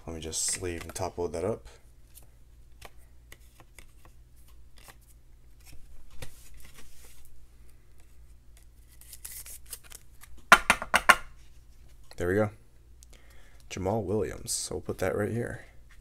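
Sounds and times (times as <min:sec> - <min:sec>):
soft plastic rustling: 0:00.3 - 0:10.4.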